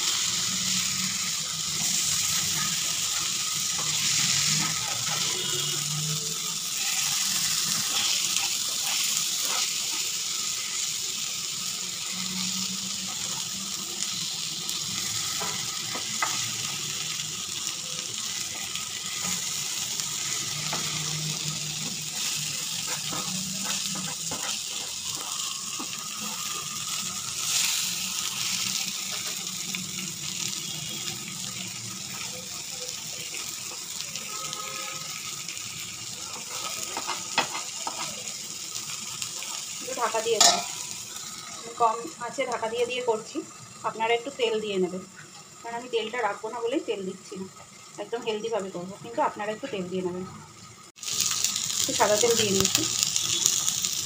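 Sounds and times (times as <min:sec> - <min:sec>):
fish sizzling in oil: 0:00.0 - 0:54.0
spatula scraping and tapping pan: 0:21.8 - 0:26.0, 0:36.5 - 0:38.1, 0:40.4 - 0:40.8.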